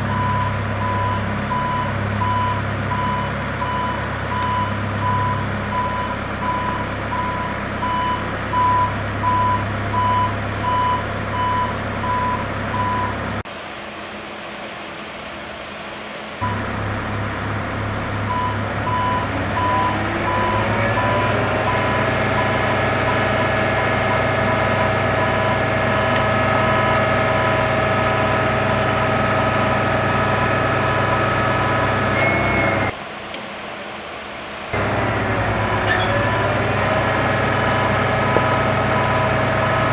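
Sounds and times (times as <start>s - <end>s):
rising hydraulic whine: 16.4s - 33.0s, 34.7s - 39.9s
warning beeper: 30.4s - 32.9s.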